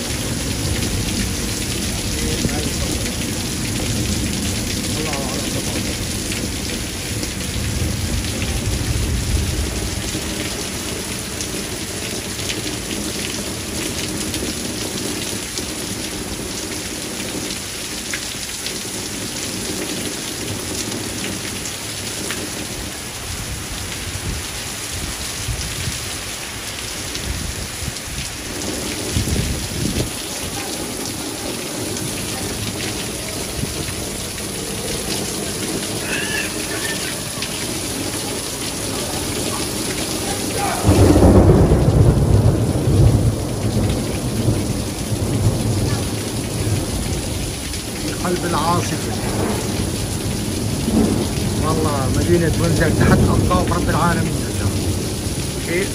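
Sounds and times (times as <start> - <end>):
low thunder rumbles: 0.0 - 16.4, 27.1 - 36.0, 37.4 - 55.9
heavy rain hissing on pavement: 0.0 - 55.9
water pouring off roof edge: 0.0 - 55.9.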